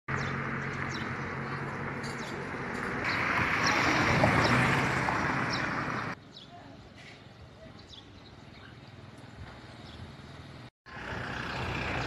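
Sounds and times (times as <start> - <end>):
small birds chirping: 0.1 - 2.5, 5.3 - 10.7
road noise: 0.1 - 12.0
vehicle engine running: 10.4 - 12.0.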